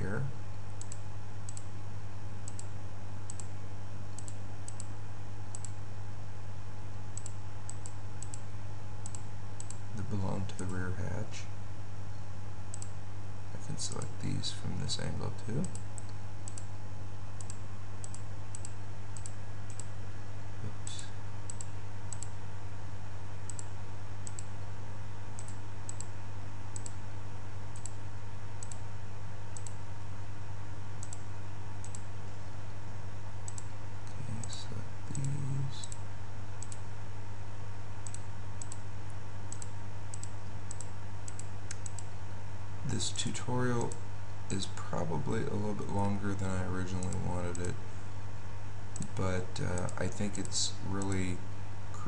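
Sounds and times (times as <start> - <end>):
low electrical hum: 0.0 - 52.0.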